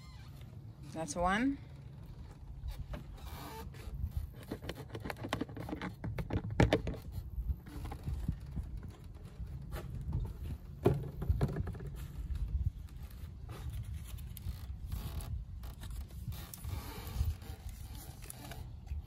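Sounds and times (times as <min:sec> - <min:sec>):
wind rumble on microphone: 0:01.2 - 0:19.0
plastic bottle clicks and knocks: 0:04.4 - 0:07.0, 0:10.8 - 0:12.0.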